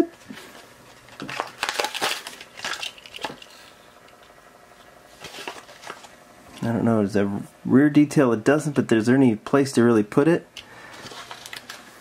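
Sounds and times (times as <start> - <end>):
plastic packaging crinkling: 0.9 - 3.7, 5.2 - 6.2, 10.9 - 12.0.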